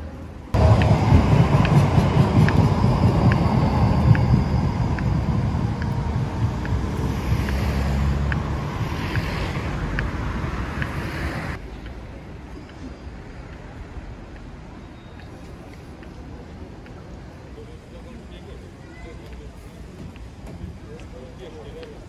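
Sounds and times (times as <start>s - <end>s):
street traffic noise: 0.0s - 22.0s
wind buffeting microphone: 0.6s - 11.6s.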